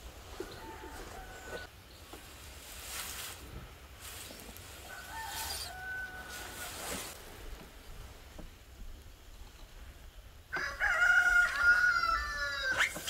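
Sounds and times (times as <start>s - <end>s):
rooster crowing: 0.4s - 1.7s, 4.8s - 6.9s, 10.5s - 12.9s
chicken calls: 4.8s - 7.2s
short rustles: 6.3s - 8.1s.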